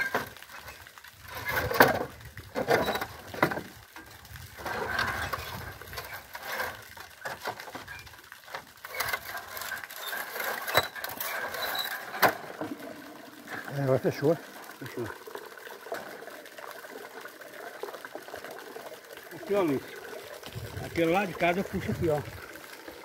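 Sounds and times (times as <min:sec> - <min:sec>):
sluice gate knocking and scraping: 0:00.0 - 0:03.7, 0:04.3 - 0:14.4.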